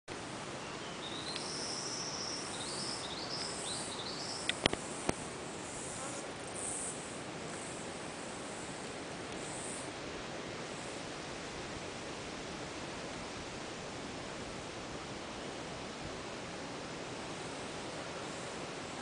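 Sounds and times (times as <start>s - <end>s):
insects chorus: 0.1s - 13.1s, 14.6s - 19.0s
bird whistling: 1.0s - 4.5s.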